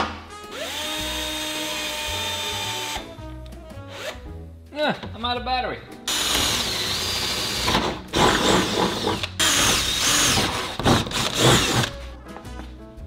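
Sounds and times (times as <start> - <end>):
cordless drill whining: 6.1 - 11.9.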